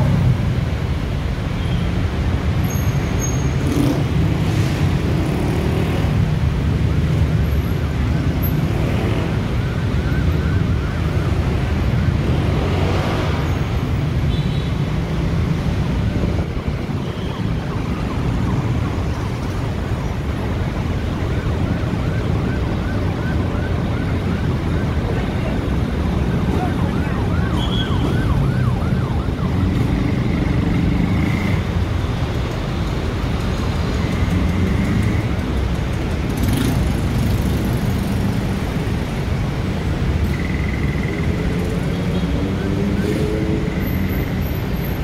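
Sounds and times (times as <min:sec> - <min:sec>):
heavy road traffic rumble: 0:00.0 - 0:45.0
faint yelping siren: 0:07.6 - 0:12.5, 0:16.9 - 0:30.6.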